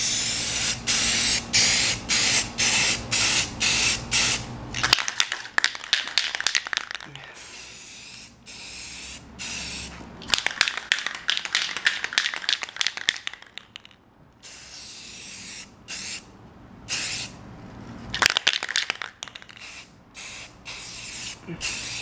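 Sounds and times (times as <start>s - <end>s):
spray can hissing: 0.0s - 4.4s, 5.9s - 13.6s, 14.4s - 16.3s, 16.9s - 17.4s, 19.2s - 22.0s.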